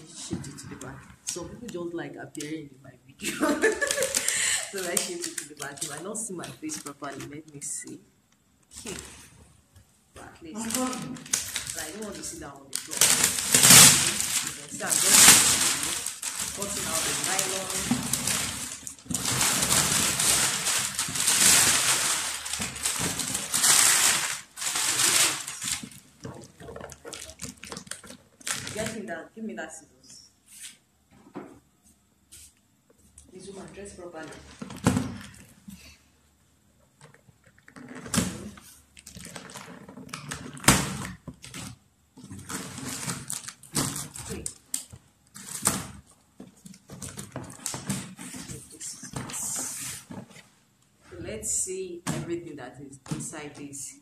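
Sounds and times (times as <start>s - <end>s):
plastic wrapping crinkling: 3.3s - 8.0s, 8.7s - 9.4s, 10.2s - 29.2s, 37.0s - 50.4s
plastic crackling and rustling: 3.4s - 8.0s, 8.7s - 29.2s, 33.1s - 35.8s, 36.9s - 52.2s.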